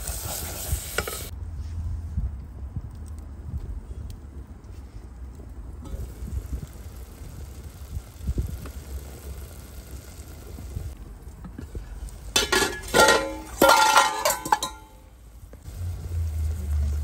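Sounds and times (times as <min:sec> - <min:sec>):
metal pot clanking and scraping: 0:12.3 - 0:15.0.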